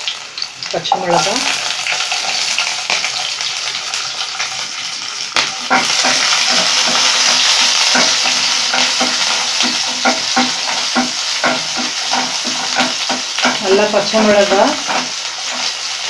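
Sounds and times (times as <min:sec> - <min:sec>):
frying in hot oil sizzling: 0:00.0 - 0:16.0
spoon scraping pan: 0:05.5 - 0:16.0.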